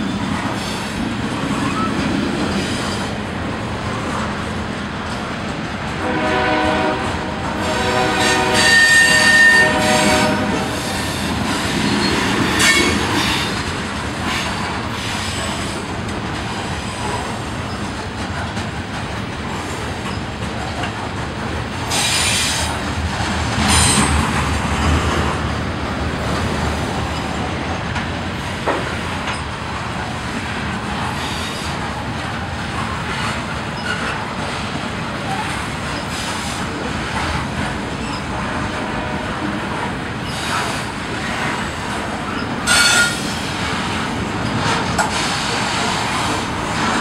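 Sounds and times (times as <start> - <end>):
freight train cars rolling: 0.0 - 47.0
horn-like pitched tone: 6.0 - 10.7
high-pitched wheel squeals: 42.7 - 43.3.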